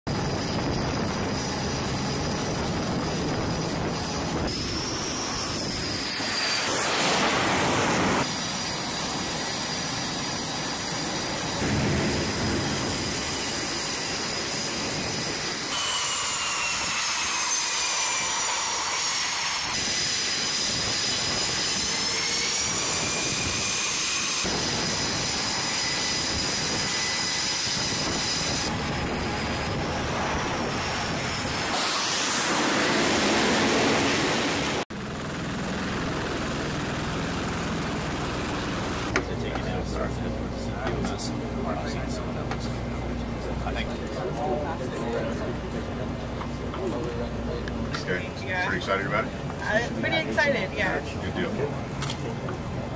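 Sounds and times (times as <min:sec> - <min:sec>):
jet launching roar: 0:00.1 - 0:15.7, 0:27.4 - 0:39.2
jet engine turbine whine: 0:00.1 - 0:17.0, 0:18.1 - 0:52.9.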